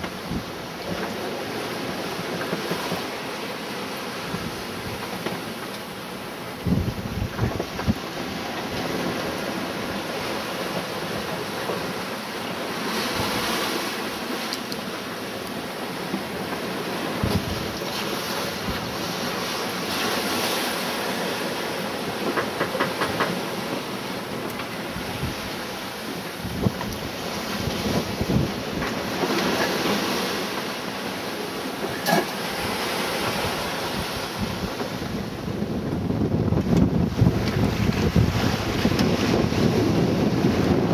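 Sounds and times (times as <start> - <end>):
waves and sea spray rushing: 0.0 - 40.9
wind buffeting microphone: 6.6 - 10.3, 24.8 - 30.4, 32.6 - 40.9.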